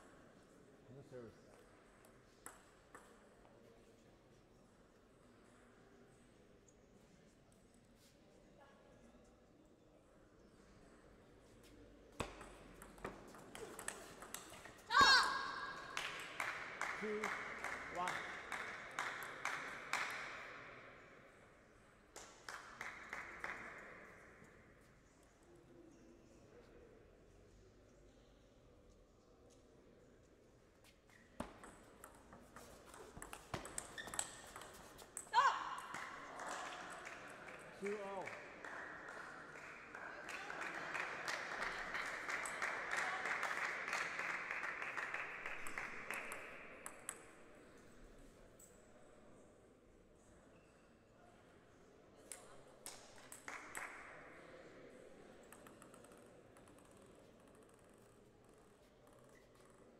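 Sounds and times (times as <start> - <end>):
crowd applauding: 15.8 - 20.1, 35.9 - 46.4.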